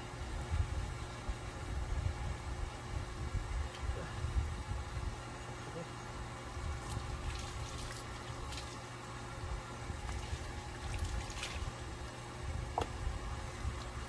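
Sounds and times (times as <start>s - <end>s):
steady low rumble: 0.0s - 14.0s
hose water splashing: 6.8s - 9.1s, 9.9s - 12.2s.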